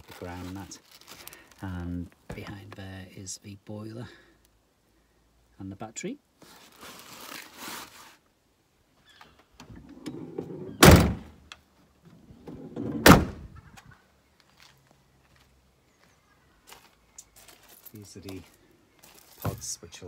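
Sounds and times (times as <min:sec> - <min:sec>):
door swinging rumble: 0:09.7 - 0:11.3, 0:12.2 - 0:13.6
van doors slamming: 0:09.7 - 0:11.4, 0:12.4 - 0:13.5.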